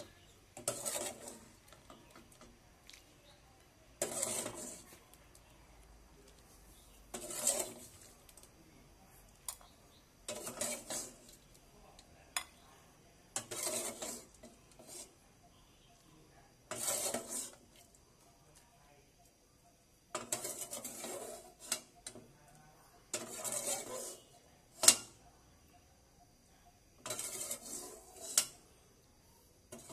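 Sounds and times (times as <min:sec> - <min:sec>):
metal ladle scraping pot: 0:00.0 - 0:02.5, 0:04.0 - 0:05.0, 0:06.8 - 0:08.5, 0:09.5 - 0:11.5, 0:13.3 - 0:15.2, 0:16.7 - 0:18.0, 0:20.1 - 0:22.4, 0:23.1 - 0:25.2, 0:27.0 - 0:28.7, 0:29.7 - 0:29.9.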